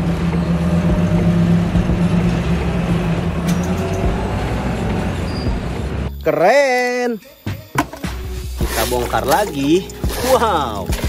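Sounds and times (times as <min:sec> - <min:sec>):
vehicle engine droning: 0:00.0 - 0:06.3.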